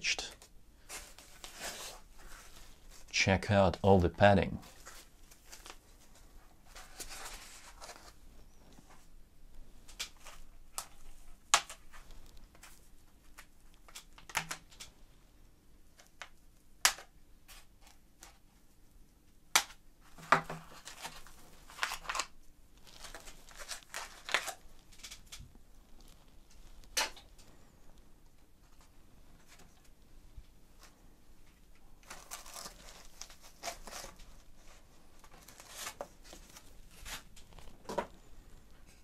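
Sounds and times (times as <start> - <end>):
foam rustling and scraping: 0.8 - 3.1.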